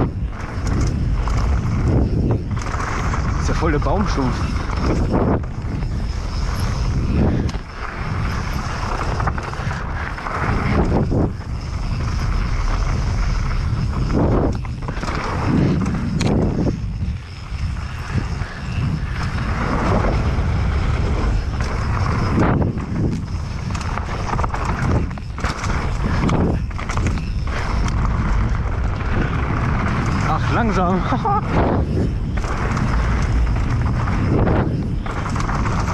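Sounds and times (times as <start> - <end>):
bike knocking and rattling: 0.0 - 35.9
knobby tyres rolling on dirt: 0.0 - 35.9
wind rushing over microphone: 0.0 - 35.9.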